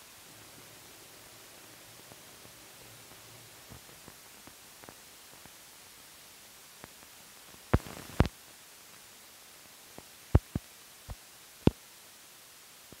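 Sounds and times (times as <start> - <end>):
film soundtrack hiss: 0.0 - 13.0
sharp pops and clicks: 6.8 - 8.3, 10.0 - 11.8.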